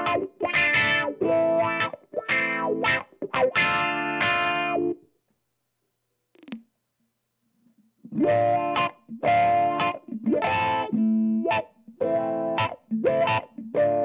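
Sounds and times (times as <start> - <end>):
distorted electric guitar with wah: 0.0 - 5.0, 8.1 - 14.0.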